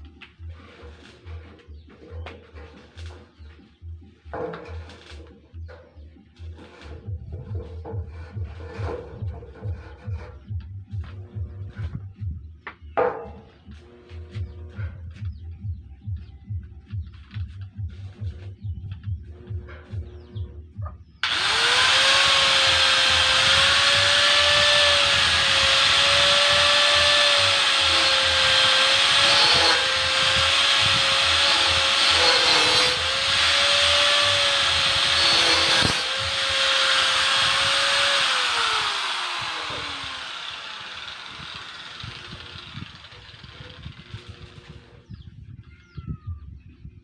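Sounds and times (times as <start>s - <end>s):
angle grinder cutting metal: 21.2s - 44.9s.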